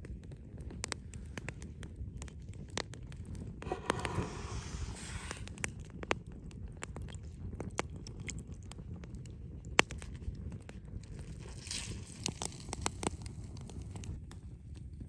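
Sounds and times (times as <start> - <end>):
low steady rumble: 3.6 - 5.8
juice dripping into sauce: 5.6 - 14.1.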